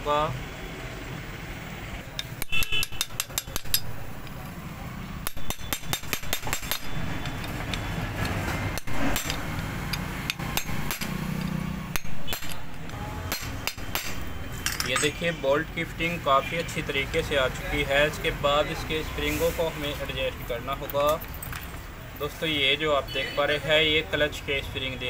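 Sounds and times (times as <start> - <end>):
hammer striking steel chisel: 2.2 - 4.4, 5.2 - 15.2.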